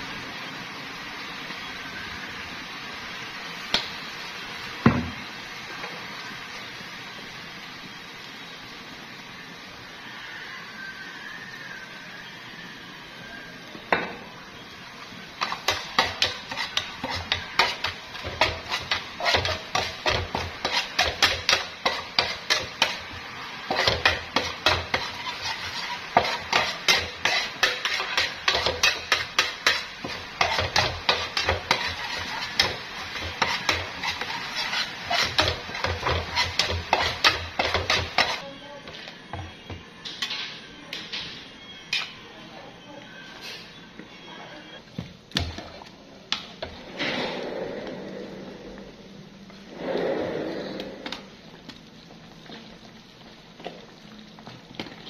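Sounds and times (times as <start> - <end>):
frying sizzle: 0.0 - 55.0
metal spatula scraping frying pan: 15.4 - 38.5.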